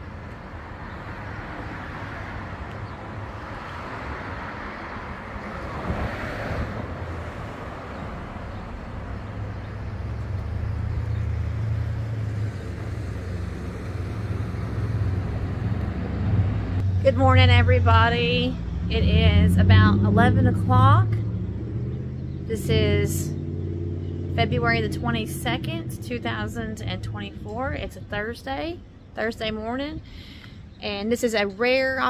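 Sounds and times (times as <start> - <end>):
car passing: 0.0 - 29.2
low traffic rumble: 0.0 - 32.0.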